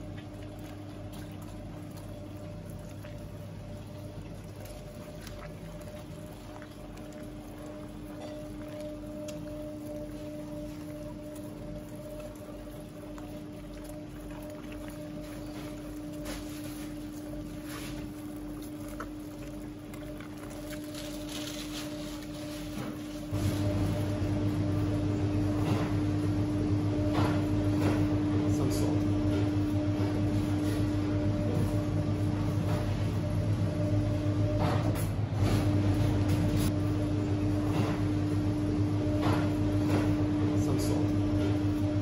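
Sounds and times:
steady machine hum: 0.0s - 42.0s.

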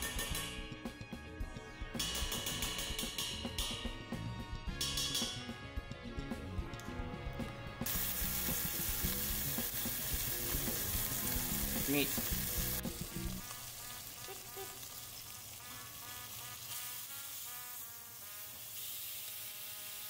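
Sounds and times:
steaks sizzling in hot oil: 7.9s - 20.0s.

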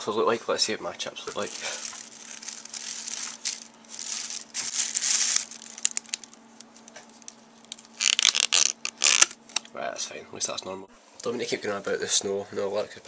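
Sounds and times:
plastic bag rustling: 1.2s - 9.3s
foil tray crinkling: 1.2s - 9.4s.

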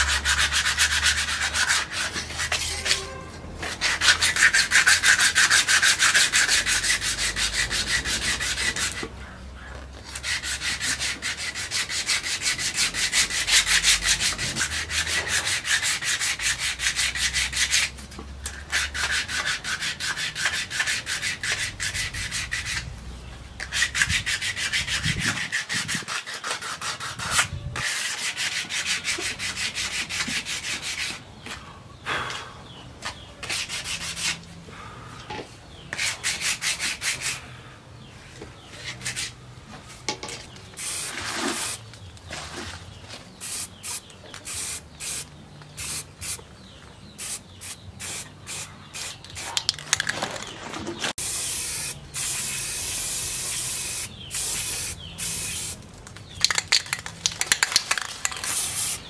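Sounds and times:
knife sharpener scraping blade: 1.6s - 5.0s.

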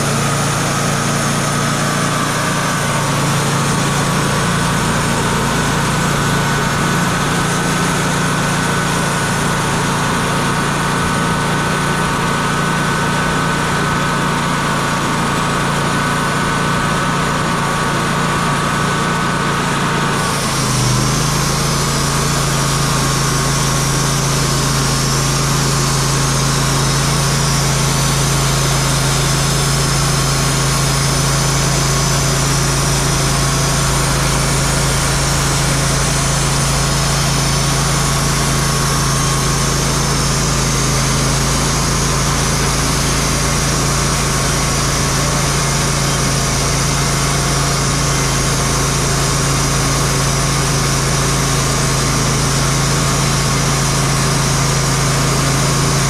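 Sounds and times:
band sawmill sawing a log: 0.0s - 56.0s.

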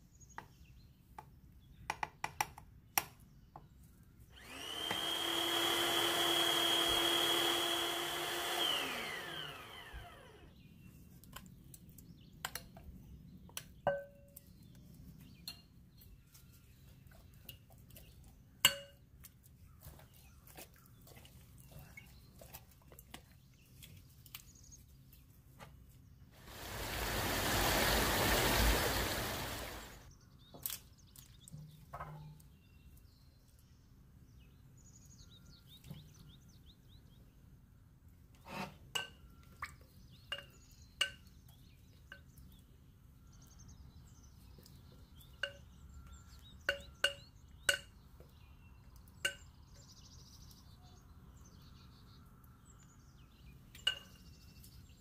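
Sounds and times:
blender motor whine: 4.4s - 10.6s, 26.4s - 30.1s
rushing noise: 26.4s - 30.0s.

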